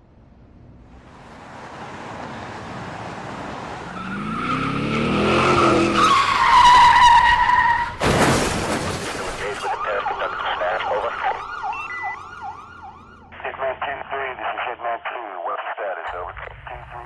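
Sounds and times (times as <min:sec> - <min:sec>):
car engine revving: 0:00.9 - 0:07.5
tyres screeching: 0:03.6 - 0:08.1
crash impact: 0:08.0 - 0:09.7.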